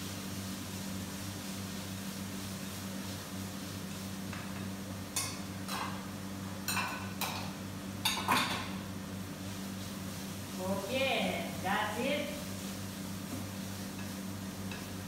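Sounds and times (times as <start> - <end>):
utensils scraping a frying pan: 12.5 - 15.0.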